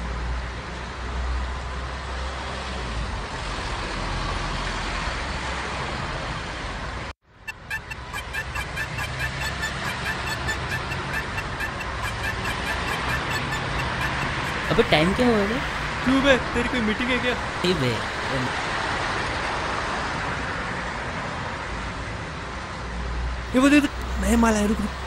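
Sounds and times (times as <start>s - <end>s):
city road traffic: 0.0s - 25.0s
fast even ticking: 7.5s - 17.4s.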